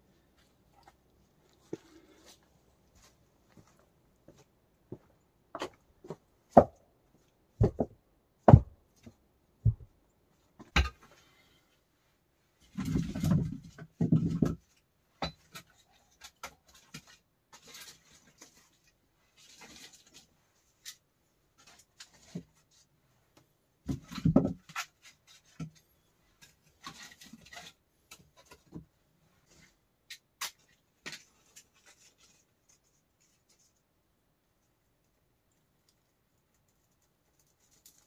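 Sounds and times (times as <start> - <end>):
objects knocking and scraping: 7.5 - 10.0, 10.6 - 11.3, 12.6 - 18.8, 23.8 - 33.3.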